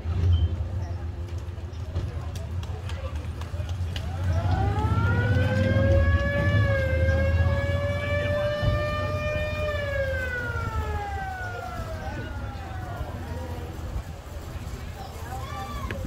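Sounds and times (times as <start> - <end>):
police siren wailing: 4.0 - 14.0.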